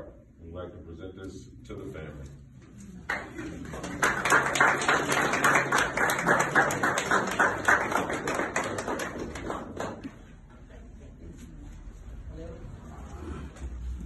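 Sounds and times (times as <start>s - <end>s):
audience applauding: 3.1s - 10.2s.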